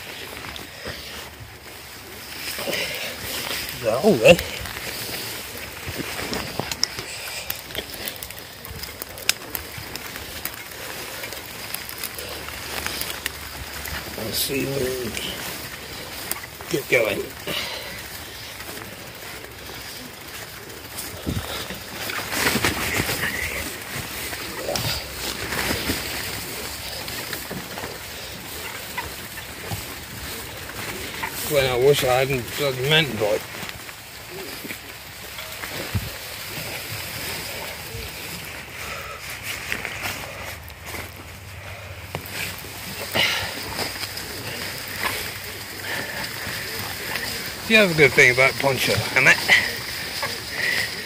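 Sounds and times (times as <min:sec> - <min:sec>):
grass and nettles rustling: 0:00.0 - 0:51.0.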